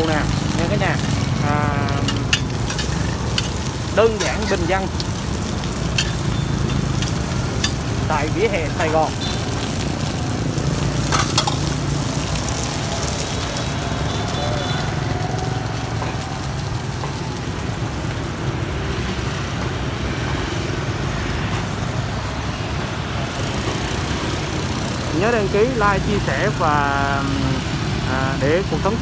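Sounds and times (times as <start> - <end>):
frying sizzle in a pan: 0.0 - 29.0
passing motorbike traffic: 0.0 - 29.0.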